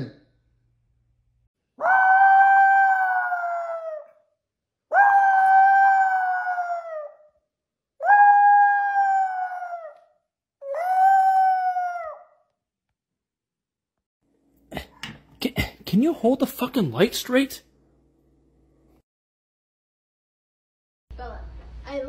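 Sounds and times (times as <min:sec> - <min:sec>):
dog howling: 0:01.8 - 0:04.3, 0:04.9 - 0:07.3, 0:08.0 - 0:12.5.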